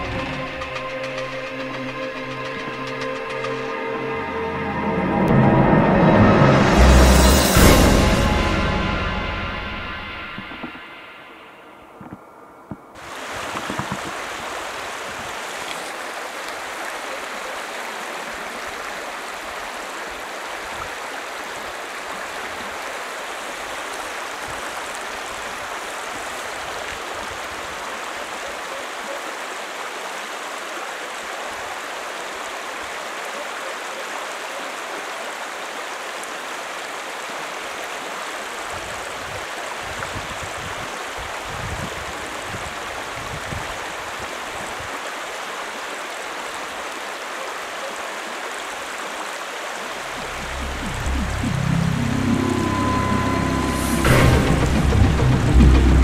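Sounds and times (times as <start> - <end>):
river rapids rushing: 13.0 - 56.0
low rumble: 50.1 - 56.0.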